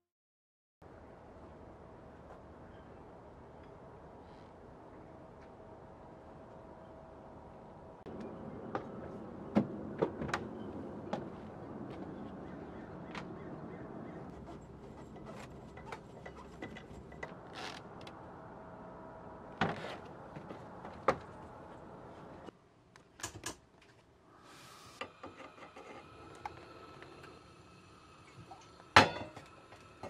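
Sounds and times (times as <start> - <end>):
gas burner hiss: 24.3 - 30.0.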